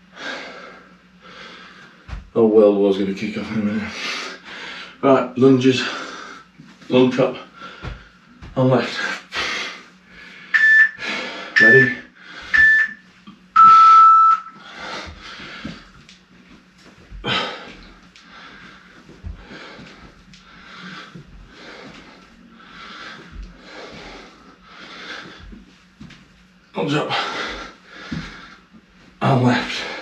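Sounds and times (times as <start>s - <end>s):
man breathing hard: 0.0s - 2.1s, 3.8s - 5.0s, 5.8s - 6.6s, 7.4s - 8.4s, 9.0s - 12.8s, 14.6s - 16.0s, 17.1s - 25.6s, 27.1s - 28.8s
interval timer beeps: 11.6s - 13.0s, 13.6s - 14.6s.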